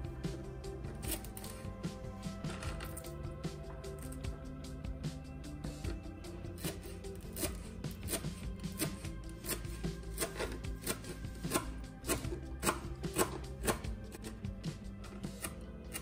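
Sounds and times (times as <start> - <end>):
background music: 0.0 - 16.0
knife chopping on plastic board: 7.4 - 14.0.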